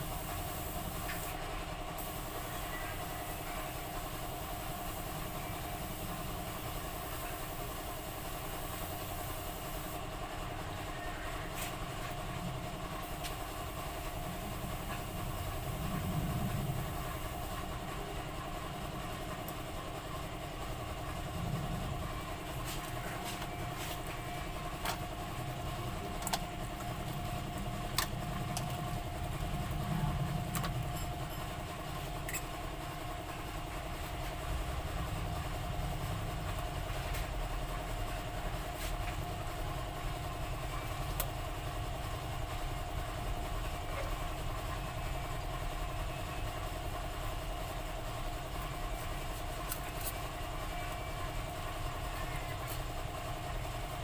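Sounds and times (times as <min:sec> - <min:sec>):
mechanical hum: 0:00.0 - 0:54.0.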